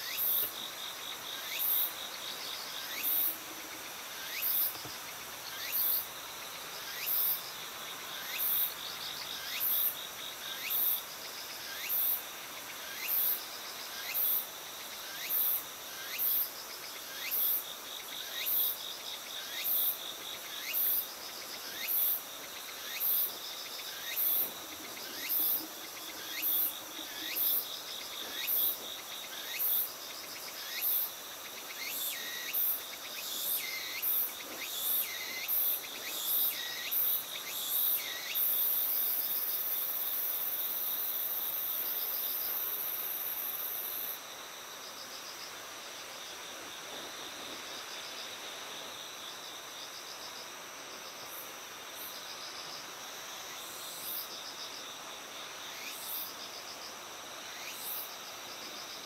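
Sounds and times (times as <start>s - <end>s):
high-pitched insect chirp: 0.0s - 7.5s
steady insect trill: 0.0s - 59.0s.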